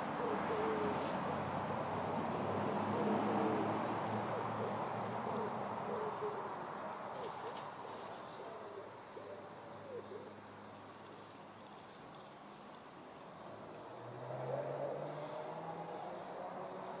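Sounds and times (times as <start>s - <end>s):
outdoor background noise: 0.0s - 17.0s
bird hooting calls: 0.2s - 1.4s, 2.6s - 10.4s.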